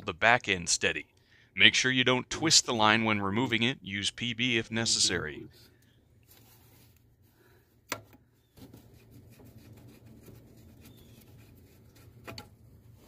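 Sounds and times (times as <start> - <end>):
hands rubbing and scraping metal: 8.4 - 13.0.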